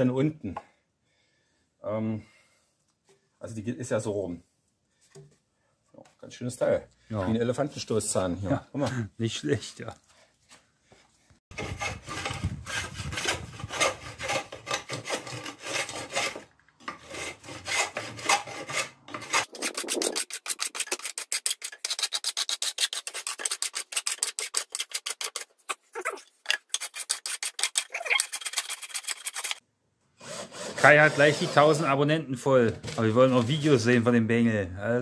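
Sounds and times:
hand tool scraping wood: 0:11.5 - 0:29.6, 0:30.2 - 0:32.0.

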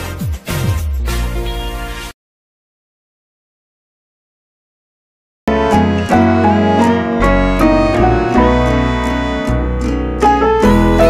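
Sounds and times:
instrumental background music: 0:00.0 - 0:02.1, 0:05.5 - 0:11.0.

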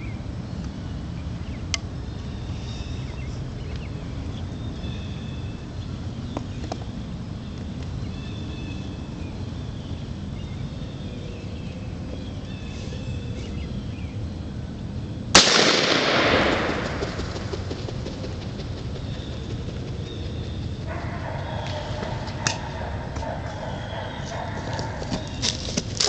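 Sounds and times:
shotgun blast: 0:15.4 - 0:17.5
faint bird calls: 0:18.8 - 0:26.0.

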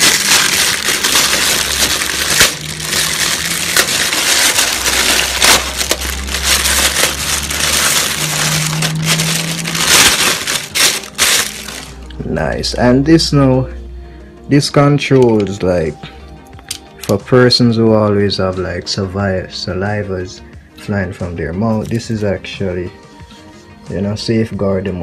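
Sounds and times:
plastic bag crinkling: 0:00.0 - 0:12.1.

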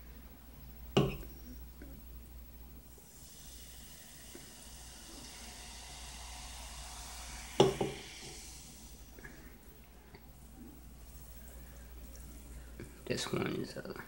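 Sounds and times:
cola pouring into a glass: 0:02.9 - 0:13.3
carbonation fizzing: 0:02.9 - 0:14.0.

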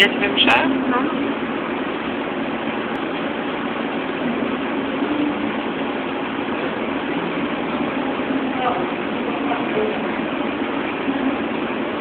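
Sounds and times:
indoor crowd din: 0:06.5 - 0:11.7.

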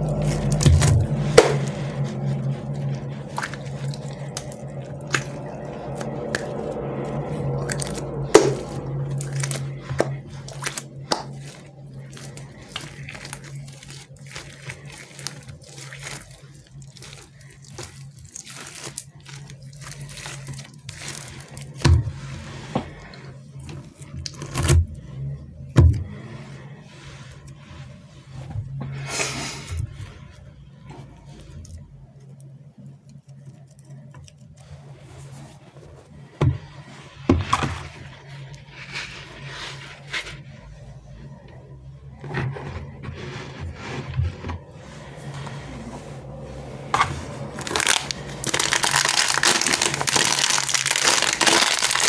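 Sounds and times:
squishy toy sticky crackles: 0:47.4 - 0:52.0.

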